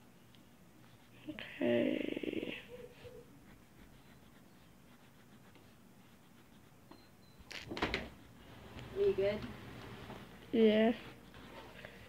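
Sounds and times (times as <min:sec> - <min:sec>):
pencil scratching on paper: 0:00.8 - 0:01.8, 0:02.4 - 0:06.9.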